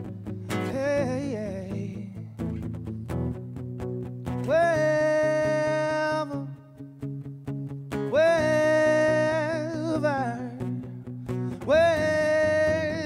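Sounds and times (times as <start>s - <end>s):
strummed acoustic guitars: 0.0s - 13.0s.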